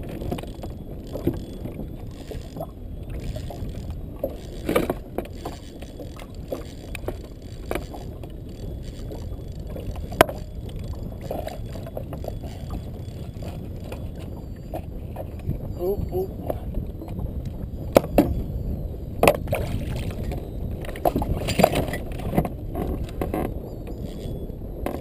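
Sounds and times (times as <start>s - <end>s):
steady low rumble: 0.0s - 23.7s
knocks and clicks on kayak hull: 19.2s - 19.7s.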